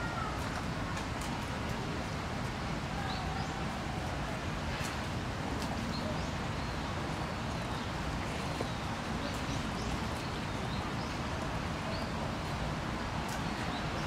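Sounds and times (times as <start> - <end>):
faint voices: 0.0 - 7.5
small birds chirping: 5.7 - 12.6.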